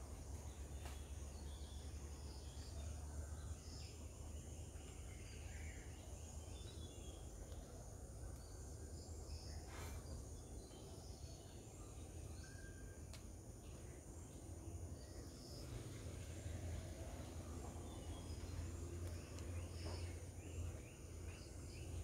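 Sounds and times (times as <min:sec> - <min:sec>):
distant bird chirps: 0:15.0 - 0:22.0.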